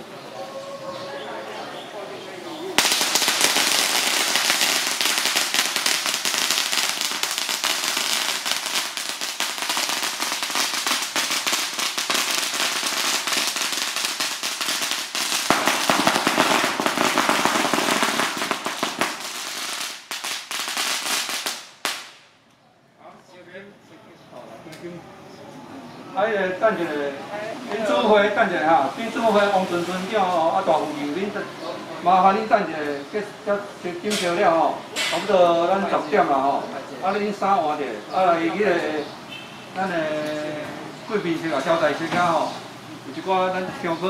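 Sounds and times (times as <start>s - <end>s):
firecrackers crackling: 2.8s - 22.5s, 27.8s - 31.4s.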